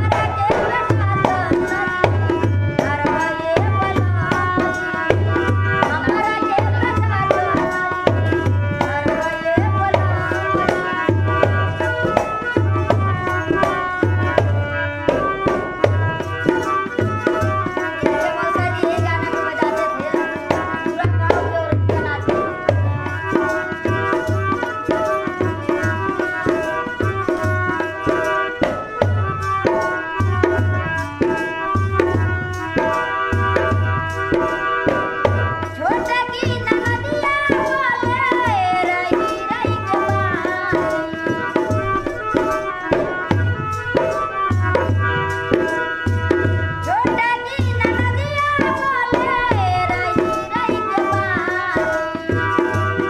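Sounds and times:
woman singing: 0.0s - 14.2s, 16.8s - 24.1s, 35.6s - 43.4s, 46.8s - 53.0s
hand drum beating: 0.0s - 53.0s
harmonium chords: 0.0s - 53.0s.

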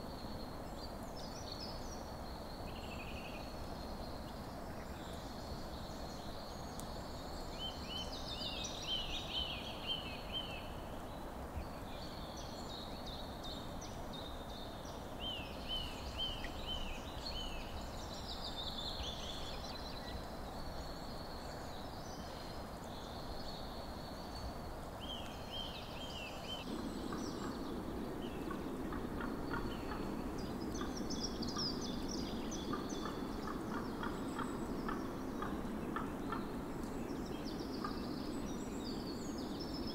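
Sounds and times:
outdoor background hiss: 0.0s - 39.9s.

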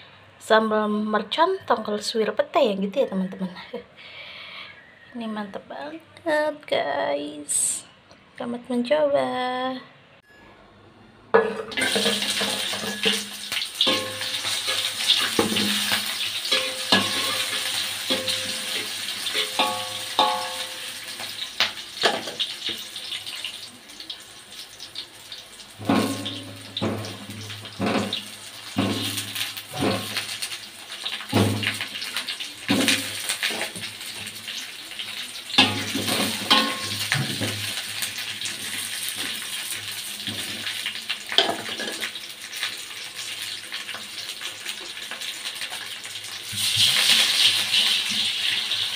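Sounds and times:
food sizzling in hot oil: 11.6s - 48.9s
spatula knocking and scraping: 25.8s - 28.2s, 28.8s - 30.2s.

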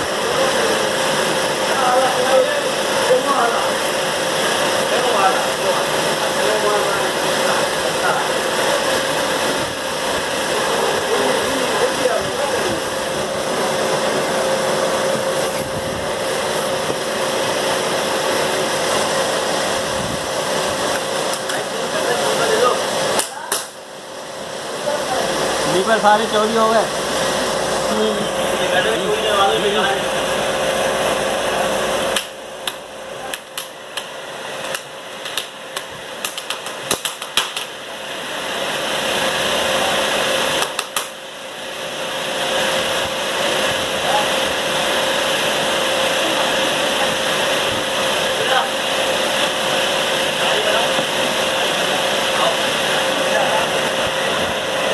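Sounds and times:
cutting machine humming: 0.0s - 54.9s
cutting machine clacking: 32.1s - 37.8s, 40.6s - 41.2s.

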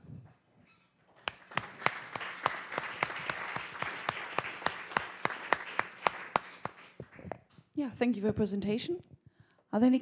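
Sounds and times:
audience applauding: 1.2s - 7.3s.

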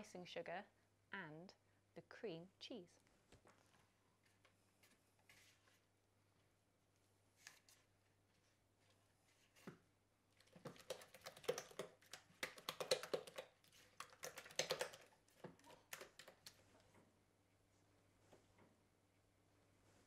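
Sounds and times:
quick clicks and taps: 10.6s - 16.6s.

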